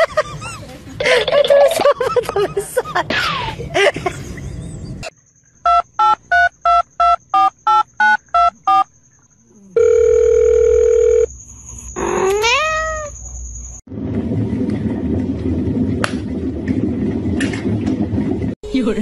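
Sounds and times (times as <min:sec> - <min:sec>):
telephone keypad beeps: 0:05.7 - 0:08.9
steady dial tone: 0:09.8 - 0:11.3.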